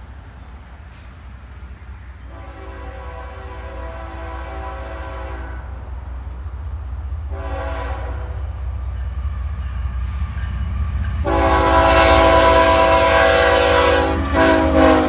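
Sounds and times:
train rumble: 0.0s - 15.0s
locomotive air horn: 2.3s - 5.9s, 7.3s - 8.5s, 11.2s - 15.0s.

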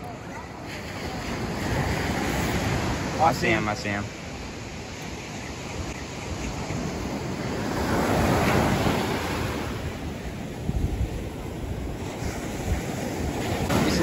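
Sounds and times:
ocean surf breaking: 0.0s - 14.0s
wind buffeting microphone: 4.2s - 14.0s.

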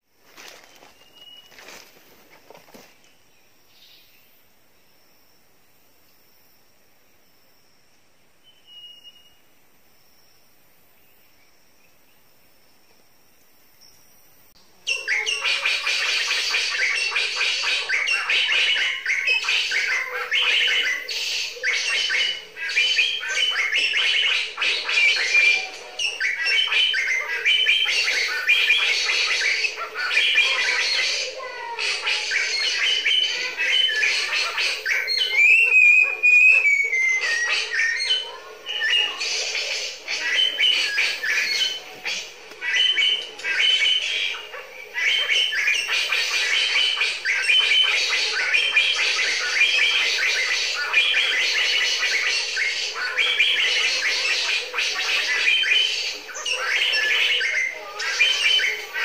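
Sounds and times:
small birds chattering and squawking: 0.0s - 4.4s, 14.6s - 59.0s
curving whistled bird call: 8.4s - 9.5s, 14.9s - 59.0s.

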